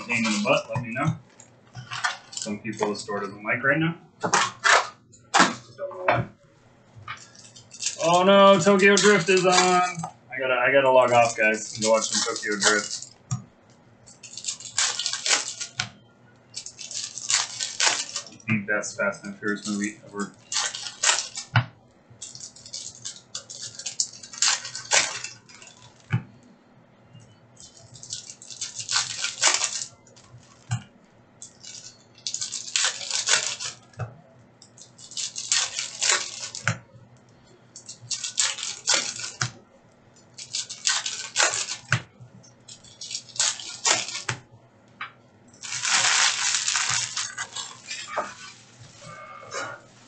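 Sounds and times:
foil packs tearing and crinkling: 0:00.0 - 0:03.0, 0:07.2 - 0:10.0, 0:10.7 - 0:13.2, 0:14.2 - 0:15.9, 0:16.5 - 0:18.4, 0:19.0 - 0:21.5, 0:22.2 - 0:26.1, 0:27.6 - 0:30.7, 0:31.4 - 0:34.0, 0:34.8 - 0:36.7, 0:37.8 - 0:39.6, 0:40.3 - 0:42.0, 0:42.7 - 0:44.4, 0:45.6 - 0:48.6.

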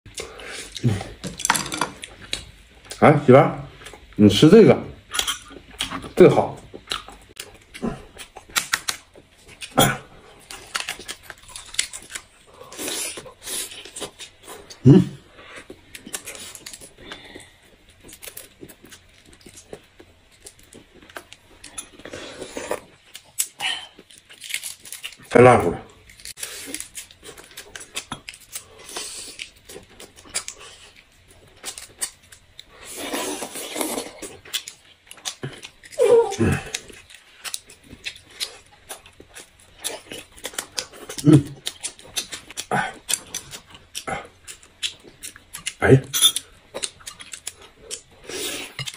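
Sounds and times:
wet chewing and tearing meat: 0:06.7 - 0:14.7, 0:15.5 - 0:25.3, 0:33.4 - 0:48.9
slurping: 0:32.8 - 0:34.3.

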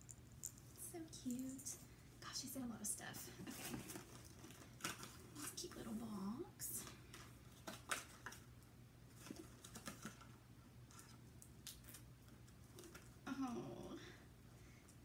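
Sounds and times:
person humming: 0:13.3 - 0:14.2.

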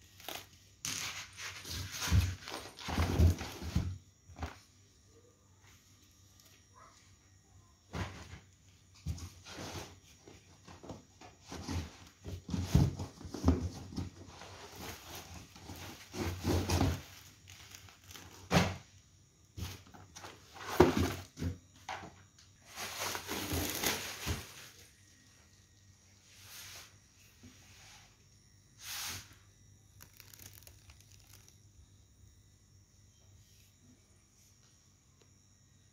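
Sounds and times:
rustling and scraping of cardboard: 0:00.1 - 0:04.6, 0:07.9 - 0:18.8, 0:19.6 - 0:24.9, 0:30.0 - 0:31.5.

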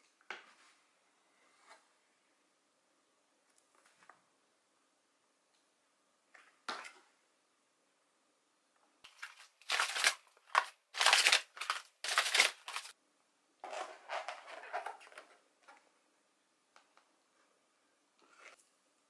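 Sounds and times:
crinkling plastic packaging: 0:09.1 - 0:12.9
paper bag rustling: 0:09.1 - 0:12.9.

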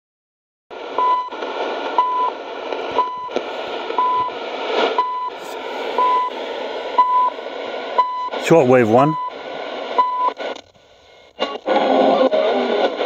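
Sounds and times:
radio static hiss: 0:00.7 - 0:13.0
short steady beeps: 0:05.0 - 0:05.4, 0:06.0 - 0:06.3, 0:07.0 - 0:07.4.

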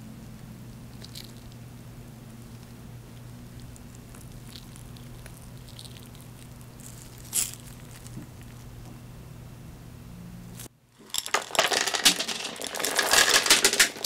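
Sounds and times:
steady low hum: 0:00.0 - 0:11.3
melted chocolate pattering and squishing: 0:02.2 - 0:08.9.

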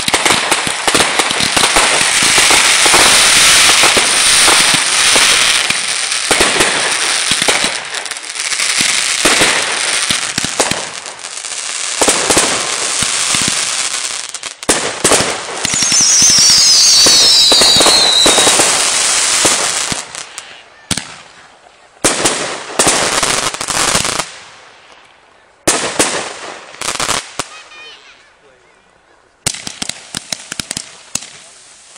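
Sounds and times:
firework bangs: 0:00.0 - 0:21.4, 0:22.0 - 0:24.7, 0:25.6 - 0:27.6, 0:29.4 - 0:31.9
fireworks popping and crackling: 0:00.0 - 0:28.2, 0:29.4 - 0:31.9
falling firework whistle: 0:15.6 - 0:19.2.

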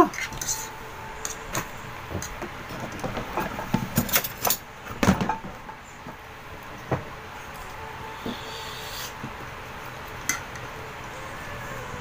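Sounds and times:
utensils and tableware clattering: 0:00.0 - 0:05.9.

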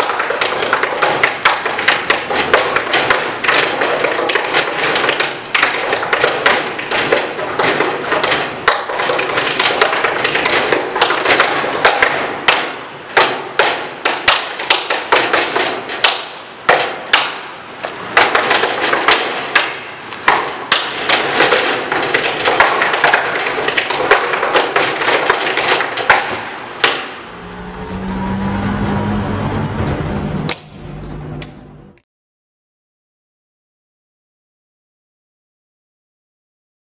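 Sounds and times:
low hum: 0:27.2 - 0:32.0.

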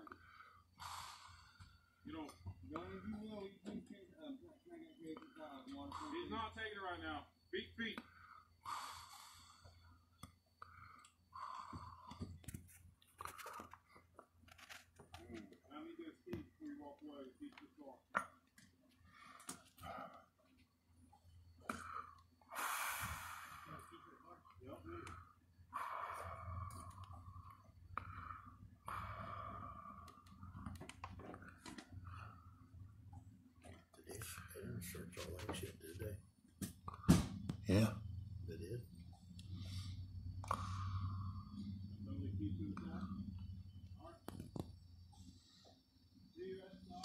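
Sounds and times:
person breathing: 0:00.1 - 0:02.0, 0:08.0 - 0:14.8, 0:21.6 - 0:24.3, 0:24.9 - 0:33.0, 0:39.4 - 0:42.1
breath-like hisses: 0:22.5 - 0:23.8.

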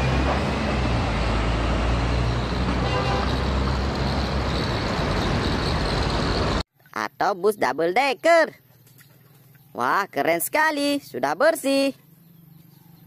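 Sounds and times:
bus engine driving past: 0:00.0 - 0:06.6
road noise: 0:00.0 - 0:06.7.

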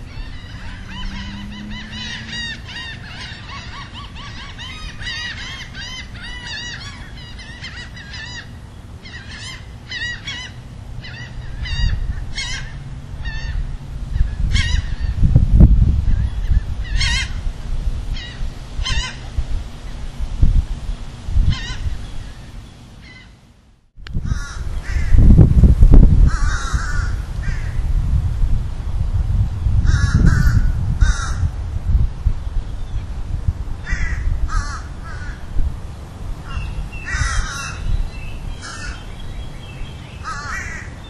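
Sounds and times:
harsh honking bird calls: 0:00.0 - 0:13.7, 0:38.6 - 0:39.2, 0:40.1 - 0:41.0
birds chirping and whistling: 0:00.0 - 0:15.3, 0:16.1 - 0:17.4, 0:36.5 - 0:41.0.

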